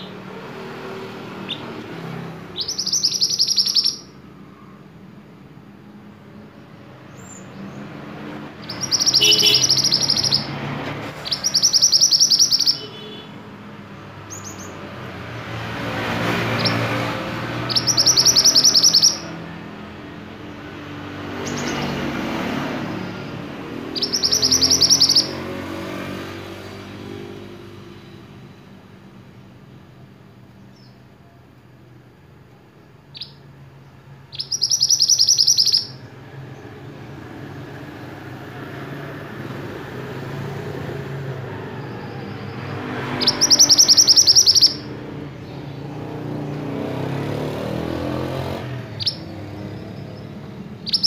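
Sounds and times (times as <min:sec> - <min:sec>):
bird singing rapid high notes: 0:00.0 - 0:04.8, 0:06.8 - 0:13.4, 0:14.0 - 0:28.6, 0:33.0 - 0:37.0, 0:41.9 - 0:51.0
short faint bird calls: 0:08.6 - 0:10.5.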